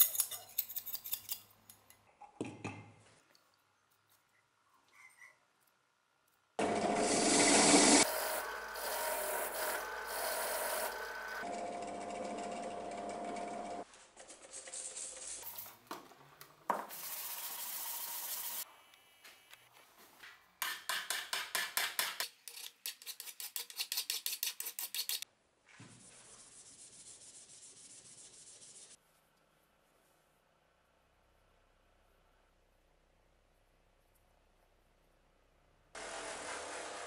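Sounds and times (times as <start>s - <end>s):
drill press motor whine: 6.6s - 13.8s
hand file strokes on metal: 22.5s - 25.2s.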